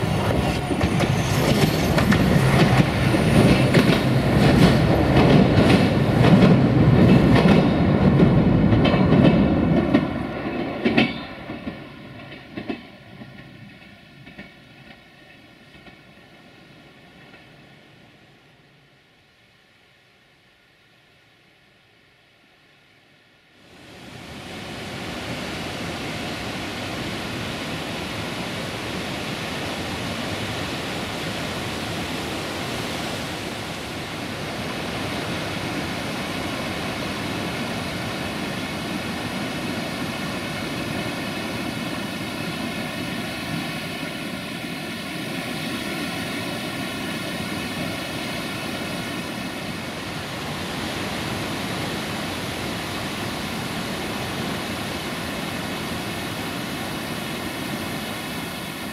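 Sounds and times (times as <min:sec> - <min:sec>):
waterfall and river rushing: 0:00.0 - 0:08.8, 0:23.6 - 0:58.9.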